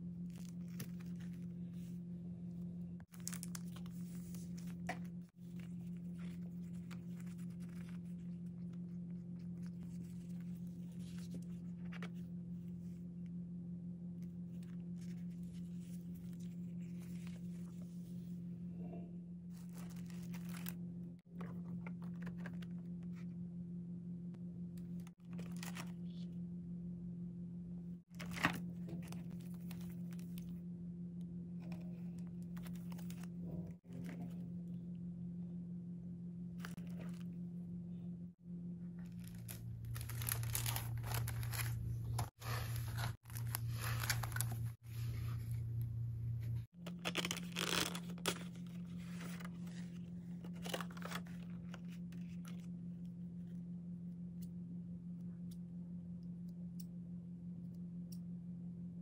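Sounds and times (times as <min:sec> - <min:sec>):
steady low hum: 0:00.0 - 0:59.0
plastic packaging rustling and crinkling: 0:03.0 - 0:08.7, 0:19.5 - 0:20.8, 0:25.2 - 0:26.2, 0:32.5 - 0:33.3, 0:39.0 - 0:45.7, 0:46.8 - 0:52.7.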